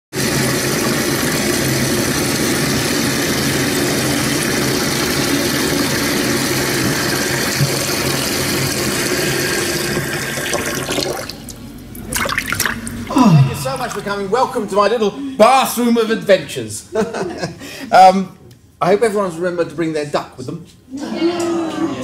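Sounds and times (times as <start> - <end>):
running water filling a bath: 0.1 - 14.2.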